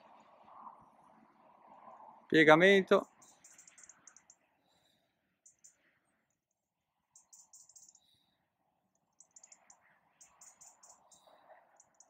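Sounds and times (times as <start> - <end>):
faint high-pitched chirps: 3.1 - 6.4, 7.1 - 12.0.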